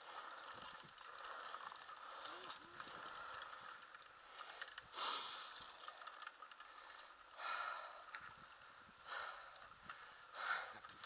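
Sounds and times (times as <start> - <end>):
faint steady hiss: 0.0 - 11.0
person breathing out hard: 1.2 - 5.8, 6.8 - 8.2, 9.0 - 10.9.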